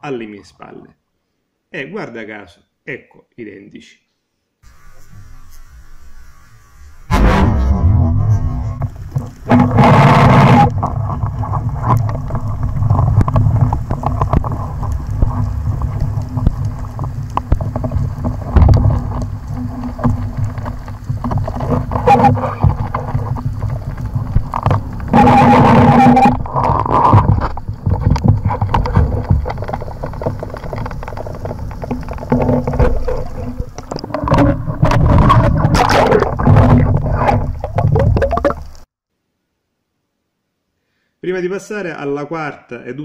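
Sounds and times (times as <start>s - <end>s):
low underwater rumble: 7.1s - 38.8s
water rushing bursts: 8.3s - 38.8s
sharp underwater clicks: 9.1s - 38.8s.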